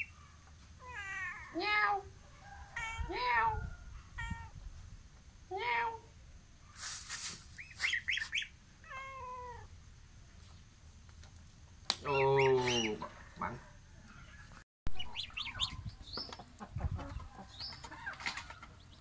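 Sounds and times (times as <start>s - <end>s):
kitten meowing: 2.8s - 3.6s, 4.2s - 4.6s, 8.8s - 9.7s
gosling peeping: 7.6s - 9.0s, 12.1s - 13.1s, 14.9s - 19.0s.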